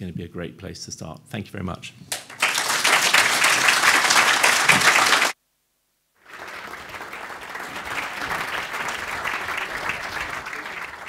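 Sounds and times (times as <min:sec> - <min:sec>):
audience applauding: 0:02.1 - 0:05.4, 0:06.2 - 0:11.0.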